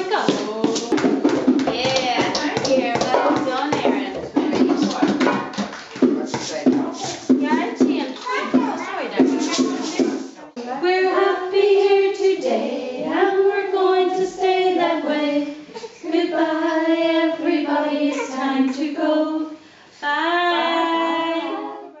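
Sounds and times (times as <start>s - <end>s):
women singing unaccompanied: 10.6s - 22.0s.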